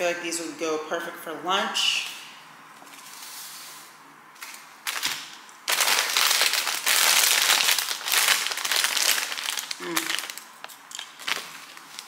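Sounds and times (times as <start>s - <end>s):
packaging crinkling and rustling: 4.4s - 12.0s.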